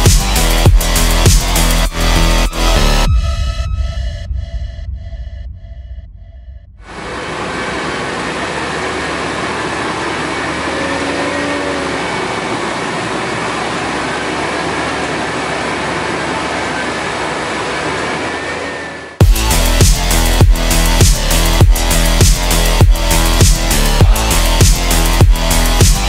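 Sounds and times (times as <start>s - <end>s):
electronic music with a beat: 0.0s - 3.5s, 19.2s - 26.0s
engines and harvester machinery drone: 0.0s - 4.2s, 6.8s - 26.0s
faint machine whine: 6.8s - 19.2s.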